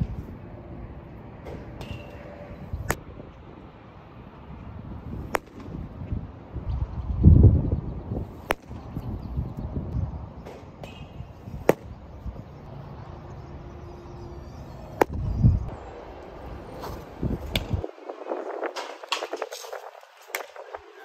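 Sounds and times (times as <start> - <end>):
wind rumbling on microphone: 0.0 - 21.0
bat cracking ball: 1.4 - 3.0, 5.2 - 6.0, 8.3 - 9.0, 10.4 - 12.1, 14.9 - 15.3, 16.8 - 17.8, 18.7 - 19.6.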